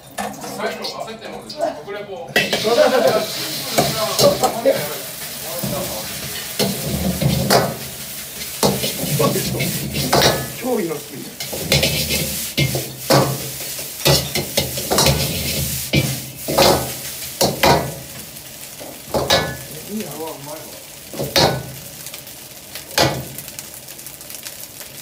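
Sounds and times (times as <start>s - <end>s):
food sizzling in wok: 0.0s - 25.0s
metal ladle clanking on wok: 2.4s - 2.7s, 6.5s - 10.6s, 11.4s - 17.9s, 19.1s - 19.7s.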